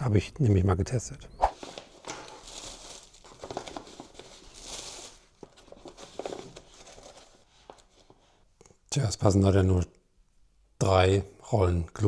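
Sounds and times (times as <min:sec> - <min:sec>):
plastic wrapping crinkling: 0:01.5 - 0:08.1.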